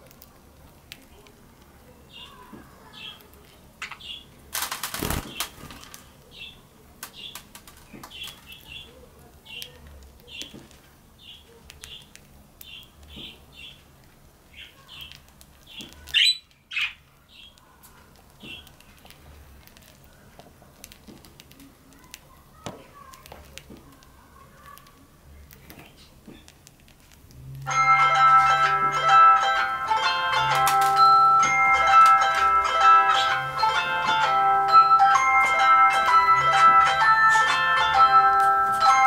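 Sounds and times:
beaks husking seed: 0.0s - 27.4s
wing flapping: 4.5s - 6.0s.

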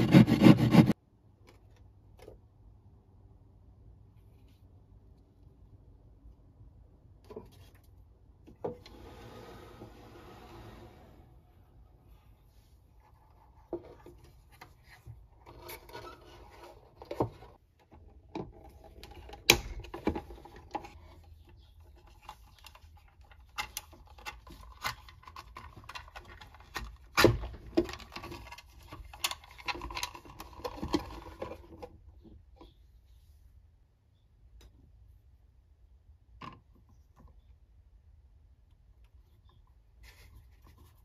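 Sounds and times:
rubbing and scraping: 0.0s - 1.0s.

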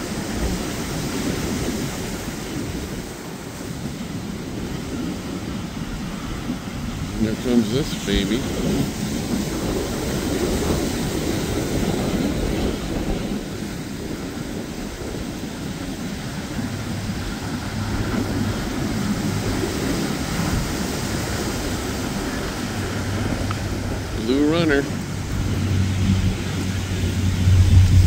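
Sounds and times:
boat engines rumbling: 0.0s - 28.0s
rushing wind and water: 0.0s - 28.0s
low steady hum: 22.1s - 28.0s.

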